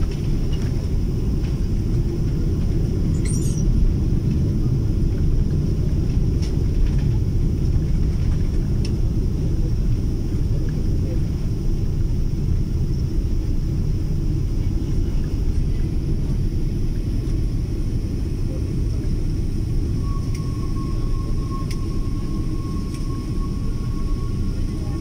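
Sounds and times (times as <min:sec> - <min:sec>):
airliner cabin rumble: 0:00.0 - 0:25.0
faint thin whine: 0:14.4 - 0:25.0.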